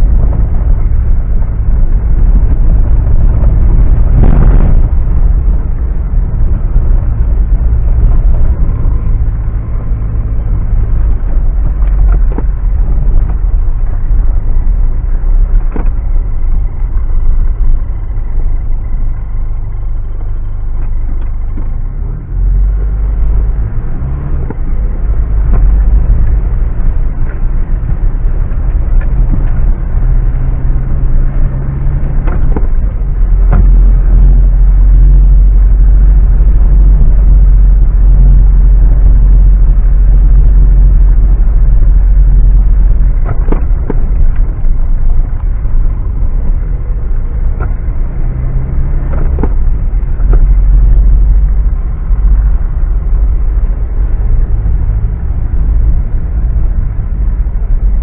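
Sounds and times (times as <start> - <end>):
engine running under load: 0.0 - 58.0
sharp knocks over rough ground: 32.0 - 34.1, 43.0 - 44.5, 48.9 - 50.8.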